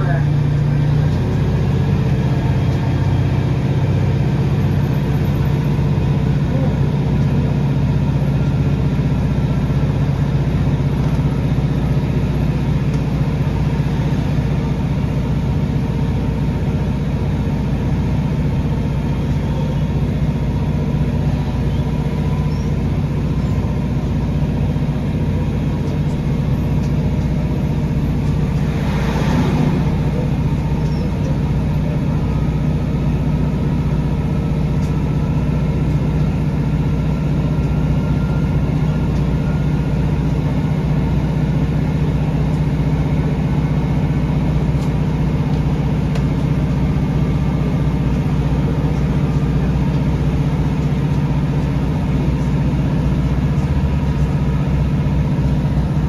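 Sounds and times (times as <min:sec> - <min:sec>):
train diesel engine running: 0:00.0 - 0:56.0
wheel and track noise: 0:07.9 - 0:56.0
short rushing noise: 0:28.6 - 0:30.8.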